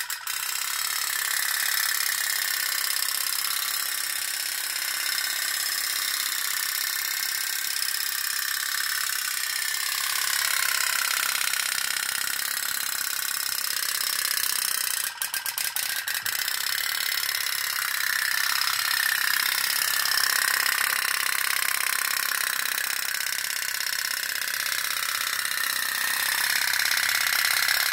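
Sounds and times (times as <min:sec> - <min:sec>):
pop-pop boat engine putter: 0:00.0 - 0:27.9.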